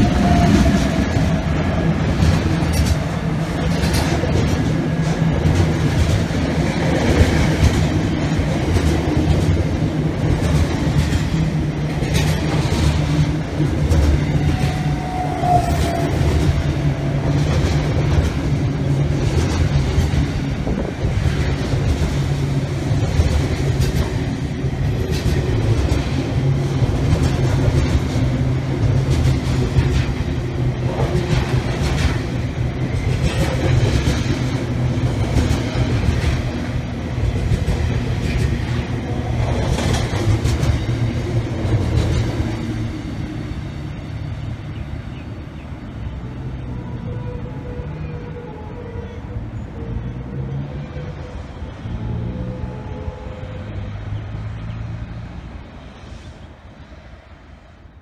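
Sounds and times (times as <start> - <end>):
diesel locomotive passing: 0.0 - 58.0
freight train rumbling past: 0.0 - 58.0
wheels clickety-clack: 2.1 - 42.8.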